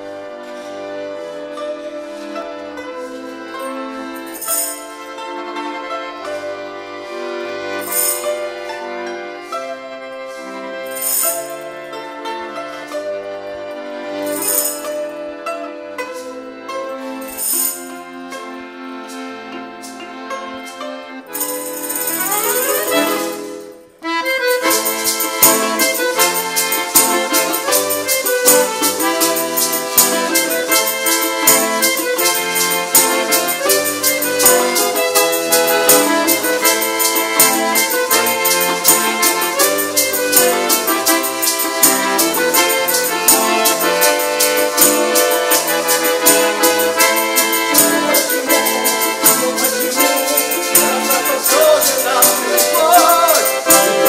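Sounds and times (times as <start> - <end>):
button accordion melody: 0.0 - 54.0
strummed balalaika: 0.0 - 54.0
tambourine and maracas beat: 3.5 - 5.2, 7.7 - 8.6, 10.3 - 11.9, 14.2 - 15.2, 16.0 - 54.0.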